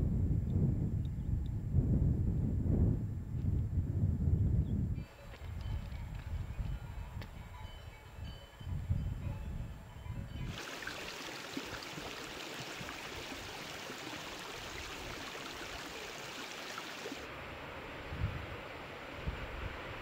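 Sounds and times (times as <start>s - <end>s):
rushing stream: 10.5s - 17.4s.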